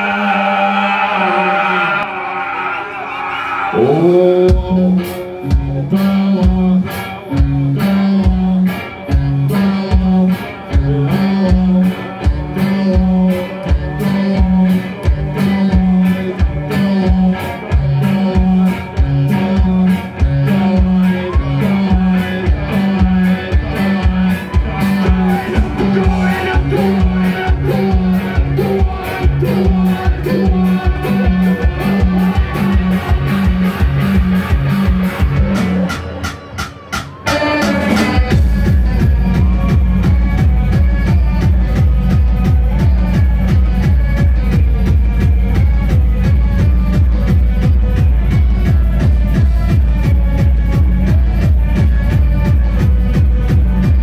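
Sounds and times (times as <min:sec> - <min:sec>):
bass riff: 0:00.0 - 0:54.0
live rock band: 0:00.0 - 0:54.0
fast drum beat: 0:10.8 - 0:54.0.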